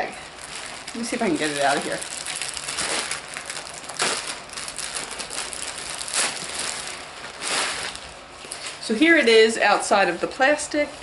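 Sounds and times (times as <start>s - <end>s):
plastic packaging crinkling: 0.2s - 8.9s.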